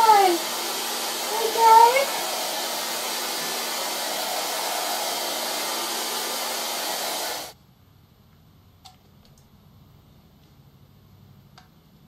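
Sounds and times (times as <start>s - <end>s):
hair dryer blowing: 0.0s - 7.6s.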